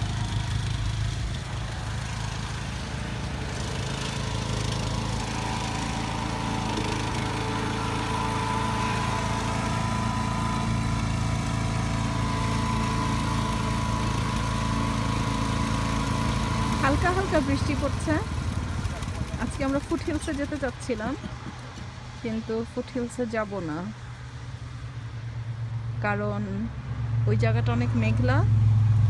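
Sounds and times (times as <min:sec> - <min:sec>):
small engine running: 0:00.0 - 0:23.3
thin whine: 0:04.0 - 0:18.0.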